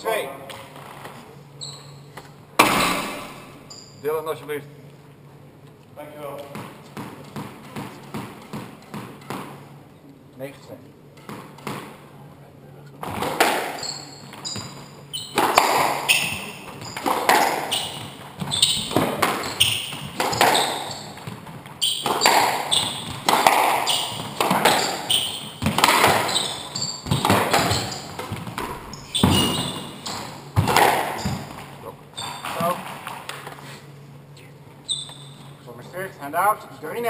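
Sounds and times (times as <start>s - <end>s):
sneakers squeaking on wooden floor: 0.5s - 4.1s, 6.4s - 9.7s, 13.0s - 33.2s, 34.3s - 35.7s
squash ball hits: 2.6s - 3.6s, 6.4s - 9.8s, 11.2s - 12.0s, 13.0s - 31.8s.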